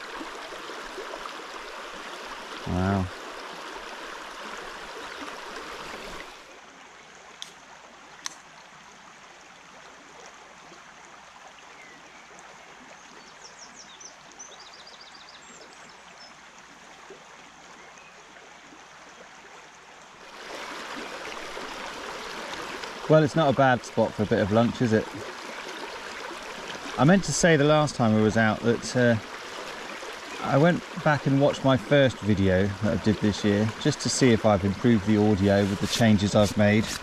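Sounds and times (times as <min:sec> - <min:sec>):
river rushing over stones: 0:00.0 - 0:06.6, 0:20.2 - 0:37.0.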